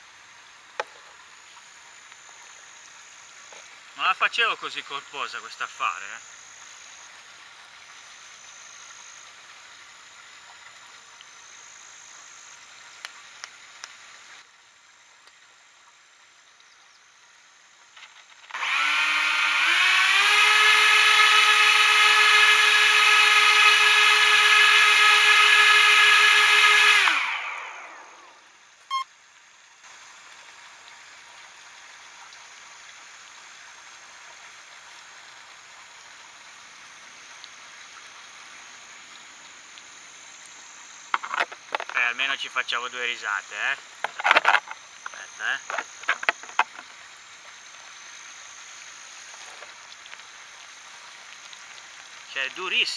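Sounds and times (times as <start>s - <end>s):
electric motors whining: 18.5s - 29.0s, 44.0s - 46.8s.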